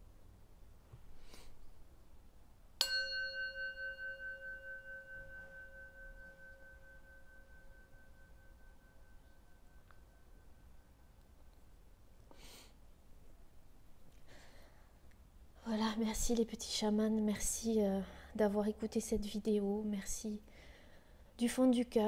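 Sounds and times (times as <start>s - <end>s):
singing bowl ringing: 2.8s - 11.2s.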